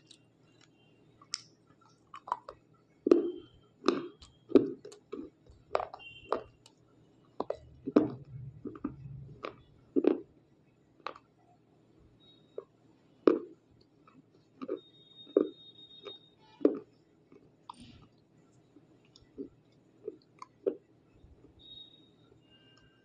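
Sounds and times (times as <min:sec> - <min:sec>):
chewing slate crunches: 0:01.3 - 0:06.8, 0:07.4 - 0:10.3, 0:11.0 - 0:11.3, 0:13.2 - 0:18.0, 0:19.2 - 0:20.9.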